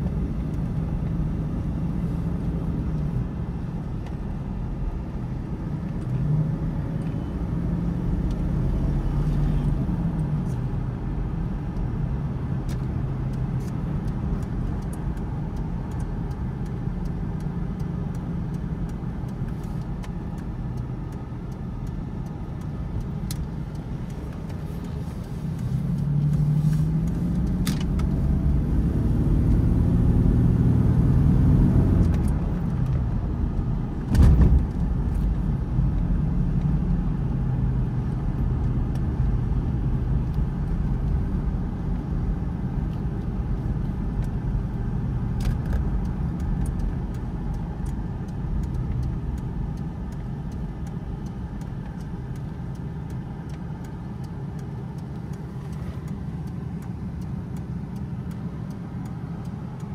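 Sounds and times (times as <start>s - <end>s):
road hum: 0.0s - 59.9s
car engine accelerating: 5.2s - 59.9s
loud thump: 34.1s - 34.6s.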